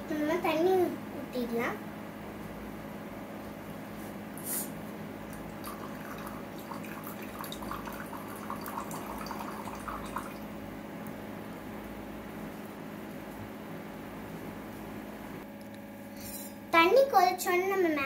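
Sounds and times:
water trickling into clay pot: 0:05.2 - 0:10.6.

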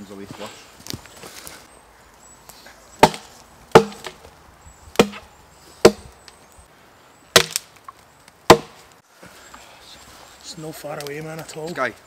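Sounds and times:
axe striking wood: 0:03.0 - 0:04.3, 0:05.0 - 0:06.1, 0:07.3 - 0:07.7, 0:08.5 - 0:08.8.

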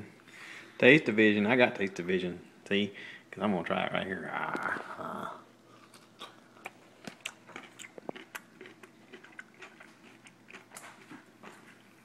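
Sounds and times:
pickle crunching while chewed: 0:05.7 - 0:12.0.

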